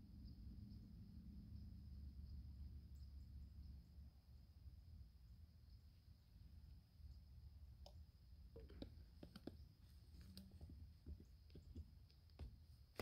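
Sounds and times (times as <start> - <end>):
plastic pipe fittings clicking: 7.8 - 13.0.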